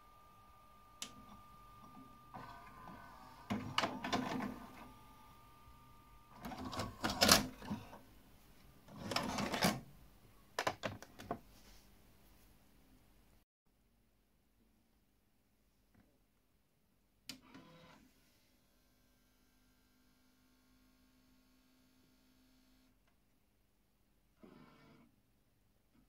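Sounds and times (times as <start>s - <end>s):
tape deck mechanism whirring: 0.1s - 8.0s.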